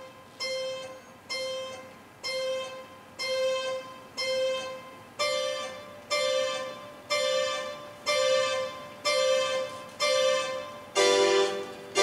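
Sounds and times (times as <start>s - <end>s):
harpsichord notes plucked: 8.1s - 12.0s.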